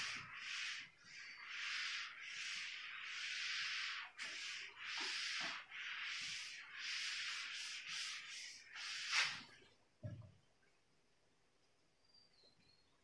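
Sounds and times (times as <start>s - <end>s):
duster scrubbing whiteboard: 0.0s - 9.6s.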